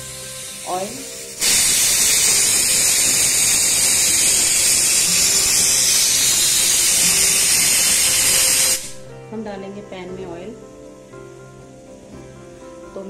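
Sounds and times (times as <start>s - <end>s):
loud high hiss: 0.0s - 9.3s.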